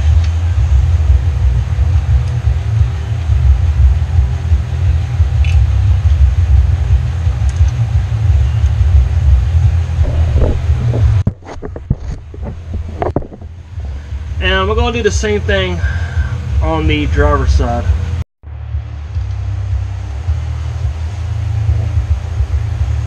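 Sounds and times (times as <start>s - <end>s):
faint hum: 8.3s - 23.0s
loud low rumble: 8.9s - 22.7s.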